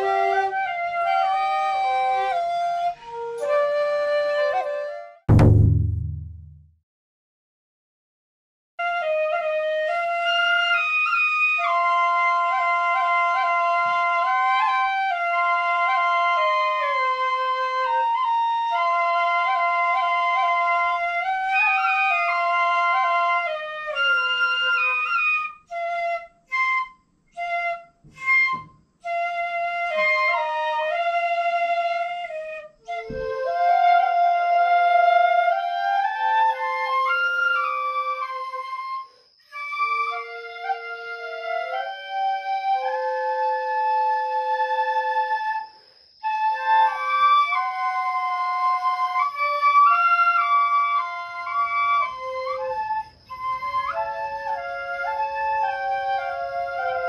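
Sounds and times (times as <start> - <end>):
bamboo flutes playing melody: 0.0 - 5.5, 8.8 - 57.0
low thump: 5.3 - 6.7.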